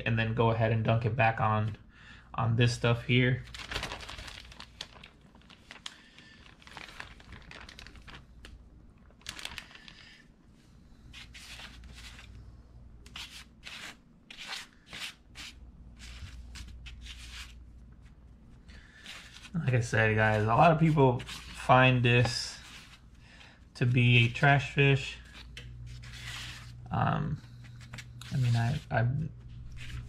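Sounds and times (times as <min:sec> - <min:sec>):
plastic bag crinkling: 0:03.4 - 0:10.3.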